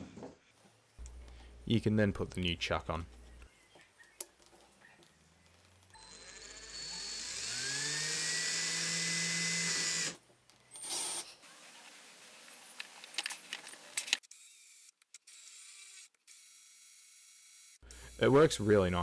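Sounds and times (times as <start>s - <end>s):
cordless drill whining: 6.0s - 10.2s.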